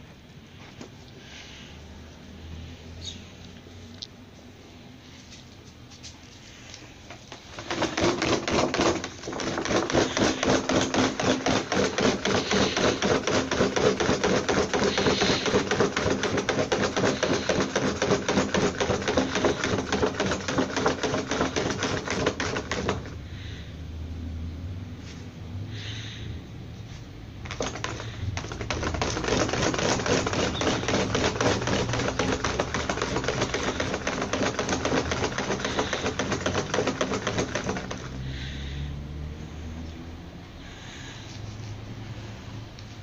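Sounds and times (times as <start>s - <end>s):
dog scratching at plastic cone collar: 7.2s - 23.2s, 27.4s - 38.5s.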